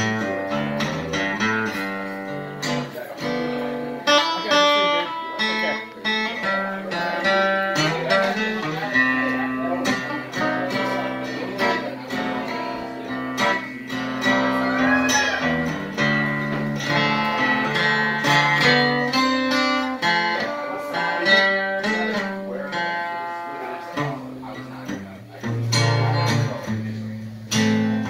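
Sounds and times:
acoustic guitar playing: 0:00.0 - 0:28.0.

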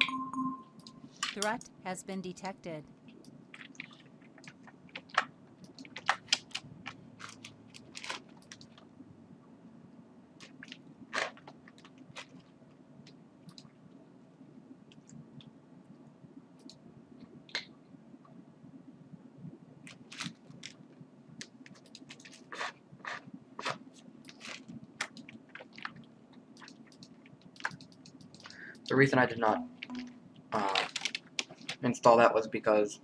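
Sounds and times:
faint low hum: 0:00.0 - 0:33.0
computer mouse clicking: 0:13.5 - 0:13.7, 0:26.6 - 0:29.0.

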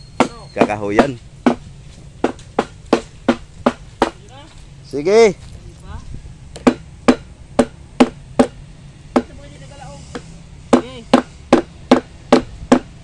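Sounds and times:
hammer blows: 0:00.0 - 0:01.6, 0:06.6 - 0:13.0.

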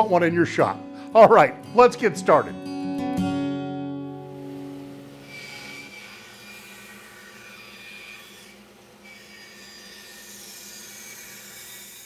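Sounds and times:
band saw cutting wood: 0:05.1 - 0:12.0.

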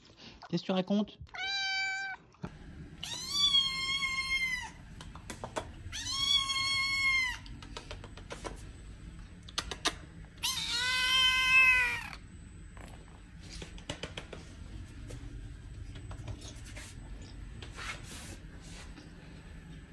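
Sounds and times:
kitten meowing: 0:01.3 - 0:02.2, 0:03.0 - 0:04.8, 0:05.9 - 0:07.5, 0:10.4 - 0:12.2.

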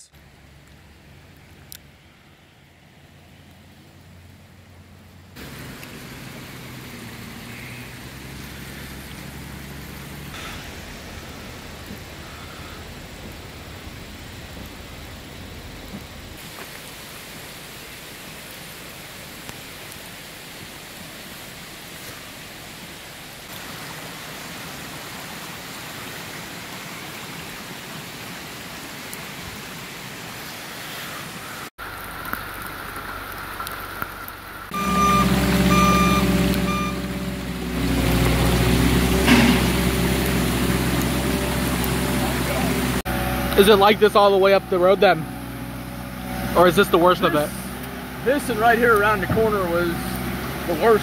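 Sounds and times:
rain and running water: 0:00.0 - 0:51.0
loader engine running: 0:04.0 - 0:16.4, 0:31.8 - 0:51.0
dump truck engine running: 0:04.2 - 0:16.4, 0:33.0 - 0:51.0
reversing alarm beeping: 0:34.7 - 0:37.3.

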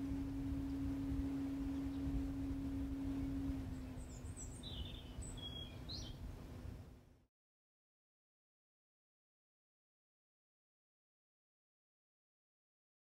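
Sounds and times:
heat pump humming: 0:00.0 - 0:06.8
faint bird chirps: 0:03.0 - 0:06.2.

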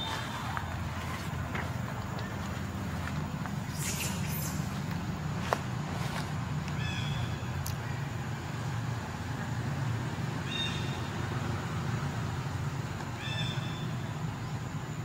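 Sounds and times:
macaque high-pitched calls: 0:03.7 - 0:04.7.

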